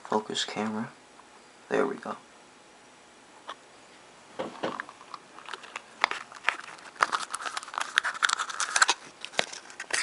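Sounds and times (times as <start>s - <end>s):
plastic packaging crinkling and clicking: 4.5s - 10.0s.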